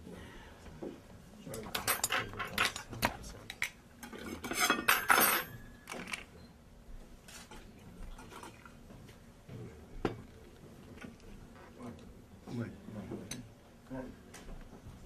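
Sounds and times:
tableware clinking and clattering: 1.6 - 6.3.

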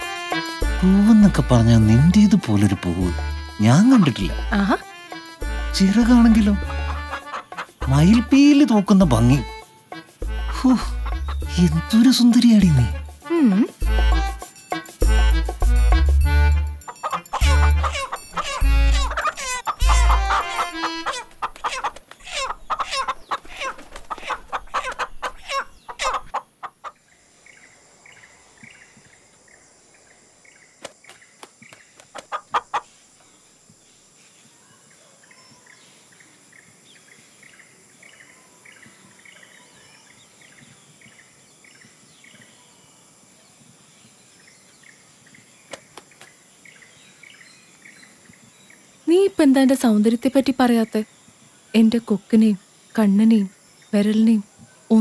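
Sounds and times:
high insect drone: 0.0 - 21.5
hen clucking: 5.8 - 8.4, 10.3 - 11.9, 16.4 - 27.0, 32.1 - 32.9
hen squawking loudly: 17.0 - 26.3.

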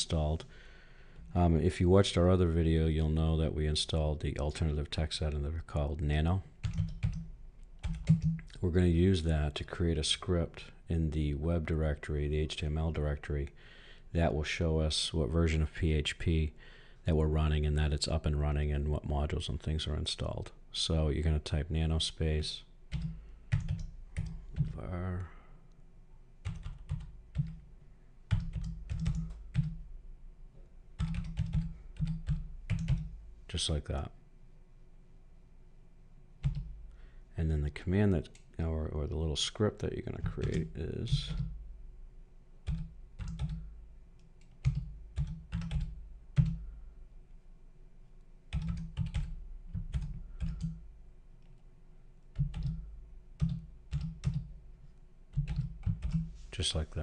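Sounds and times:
typing on computer keyboard: 6.6 - 8.5, 22.9 - 24.8, 26.4 - 27.6, 28.3 - 29.8, 31.0 - 33.1, 42.6 - 43.6, 44.4 - 46.6, 48.5 - 50.8, 52.4 - 52.8, 53.4 - 54.5, 55.3 - 56.3.

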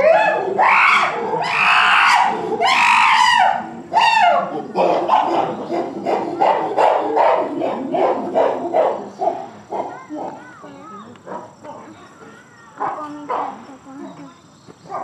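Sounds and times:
chimpanzees screaming: 0.0 - 11.0.

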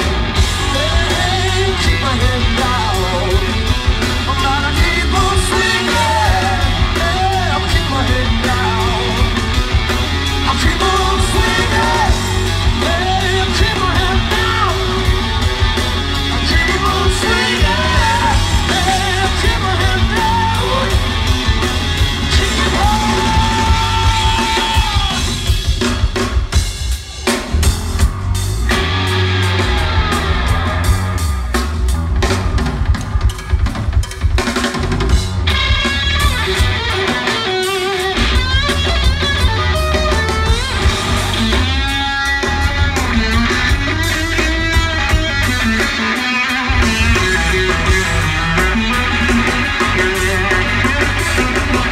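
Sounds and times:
man singing: 0.0 - 9.7, 10.3 - 25.7, 39.4 - 51.9
hard rock band playing live: 0.0 - 51.9.

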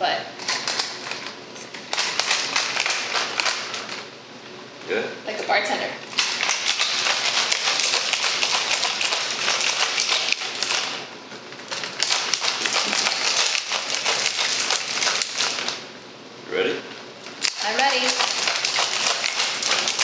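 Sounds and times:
ice rattling in cocktail shaker: 0.4 - 4.0, 6.1 - 11.0, 11.7 - 15.8, 17.3 - 20.0.

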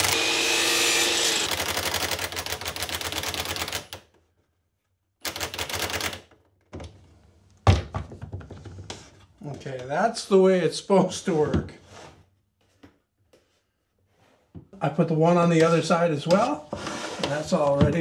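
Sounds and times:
impact driver driving screw into wood: 0.0 - 1.7.

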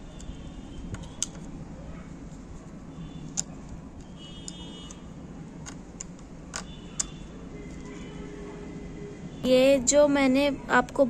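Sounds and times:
low background noise: 0.0 - 11.0
screwdriver metal clicks: 3.3 - 3.6.

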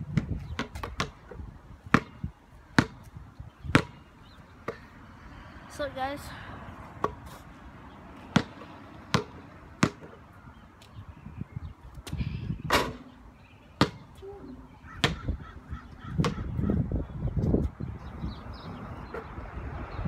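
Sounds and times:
basketball bouncing on pavement: 0.0 - 5.0, 6.9 - 7.4, 8.1 - 11.0, 12.0 - 14.2, 14.9 - 17.8.

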